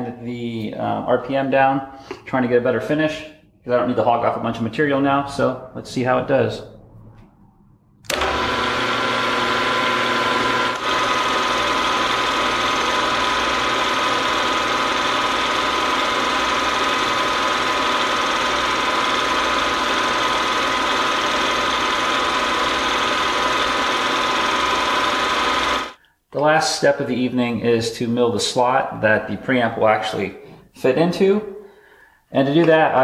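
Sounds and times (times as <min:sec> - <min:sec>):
milling machine whine: 0:08.0 - 0:26.0.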